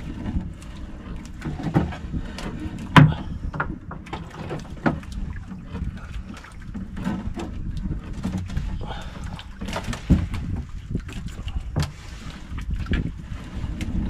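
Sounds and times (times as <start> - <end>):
knocks and bumps on a boat: 0.0 - 14.0
water and wind rushing: 0.0 - 14.0.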